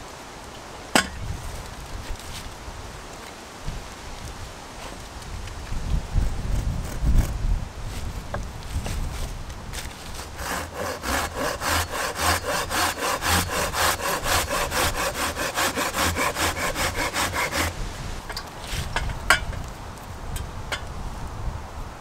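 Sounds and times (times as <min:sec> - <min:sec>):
hand saw cutting wood: 0:06.2 - 0:07.4, 0:10.0 - 0:17.9.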